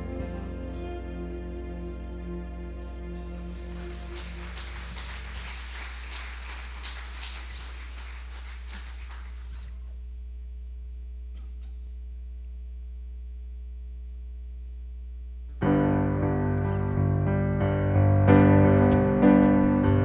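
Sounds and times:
piano chords: 0.0 - 7.0, 15.6 - 20.0
faint hum with held tones: 0.0 - 19.8.

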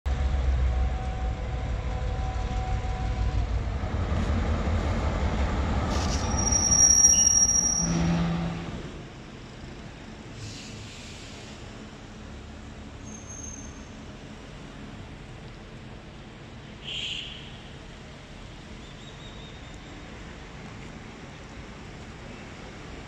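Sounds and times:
locomotive engine rumble: 0.1 - 13.1
wheels squealing on rails: 0.6 - 9.0, 13.0 - 14.2.

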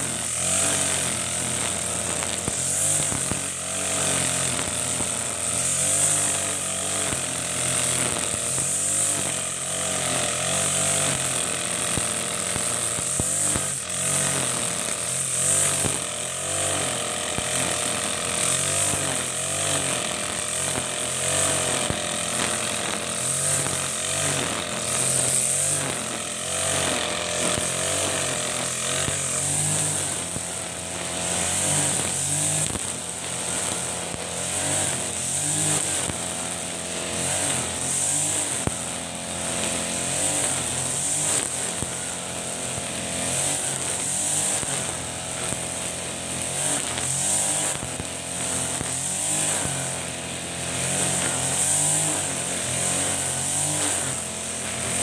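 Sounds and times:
brush cutter engine running: 0.0 - 55.0
trimmer line hissing through grass: 0.0 - 55.0.

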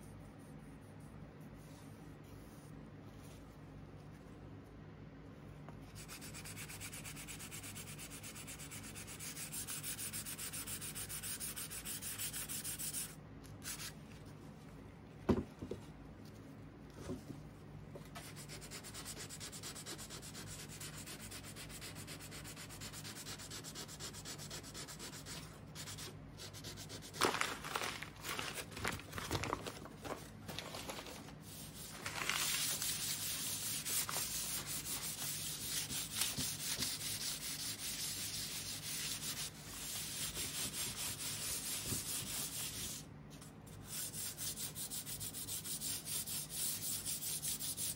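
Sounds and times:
sponge sanding wood: 6.0 - 13.2, 18.2 - 27.1, 32.7 - 43.0, 43.8 - 47.9.

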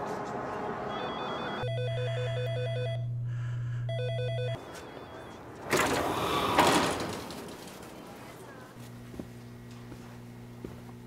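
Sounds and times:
steady low buzz: 1.6 - 4.6, 8.8 - 11.0.

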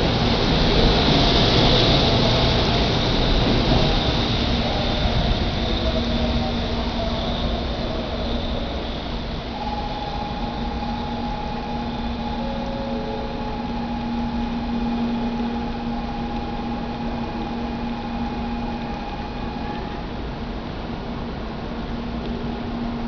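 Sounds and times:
station hum: 0.0 - 23.0
train pulling away: 0.0 - 23.0
held tones: 9.2 - 20.1.

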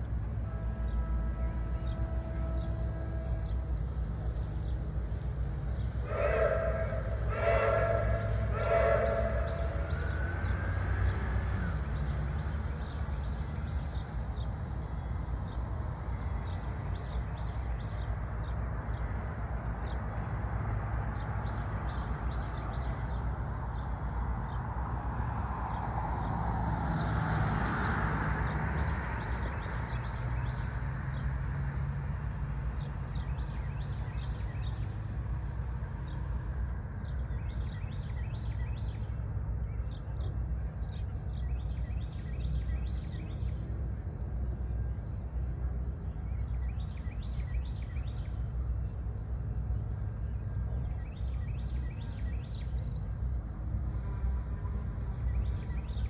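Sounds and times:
steady low rumble: 0.0 - 13.5
rushing noise: 6.0 - 11.7.

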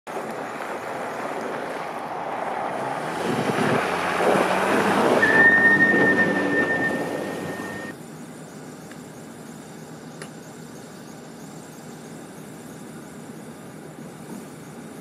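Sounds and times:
vehicle engine: 0.1 - 11.7
steady rushing outdoor noise: 0.1 - 15.0
steady high tone: 5.2 - 7.9.

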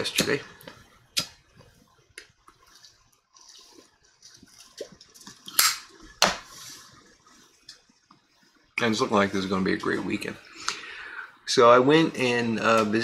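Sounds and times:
breathy exhale: 10.5 - 11.4.

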